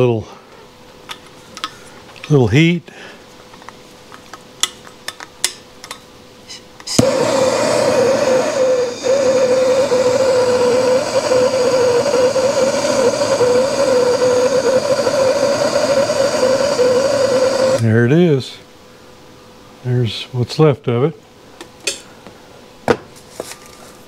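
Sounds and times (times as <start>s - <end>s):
torch igniter clicks: 6.8s - 17.8s
torch flame rushing: 6.9s - 17.8s.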